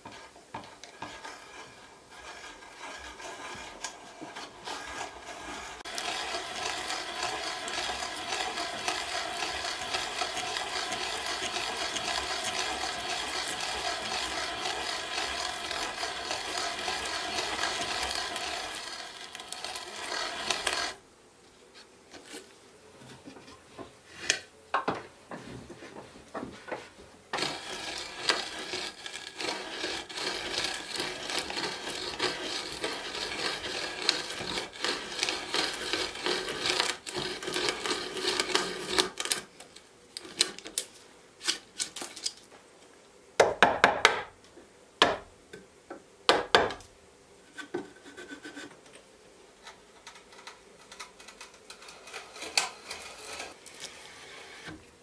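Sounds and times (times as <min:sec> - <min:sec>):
hand brace boring through wood: 0:00.0 - 0:21.0, 0:27.3 - 0:39.5, 0:50.0 - 0:54.9.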